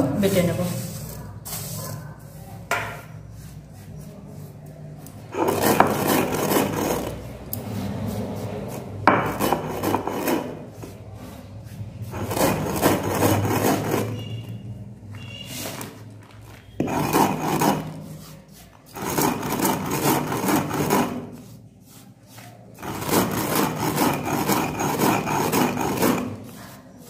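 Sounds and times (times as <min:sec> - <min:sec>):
stone roller grinding on stone slab: 0:05.3 - 0:14.6, 0:16.7 - 0:27.0.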